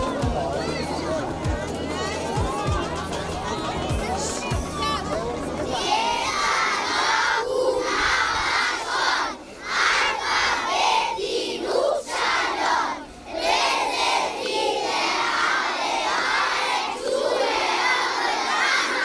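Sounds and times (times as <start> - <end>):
children chanting in chorus: 5.7 - 19.0.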